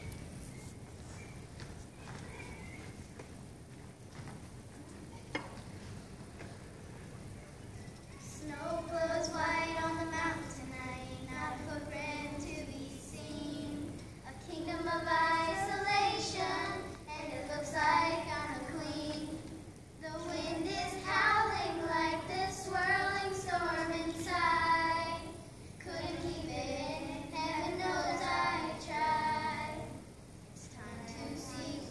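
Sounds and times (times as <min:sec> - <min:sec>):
children singing: 0:08.2 - 0:30.0, 0:30.6 - 0:31.9.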